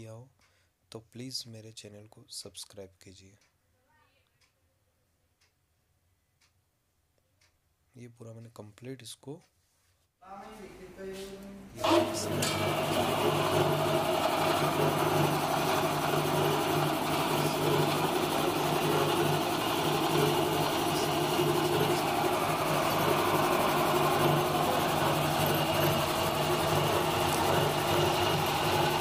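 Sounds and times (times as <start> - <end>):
air compressor running: 11.8 - 29.0.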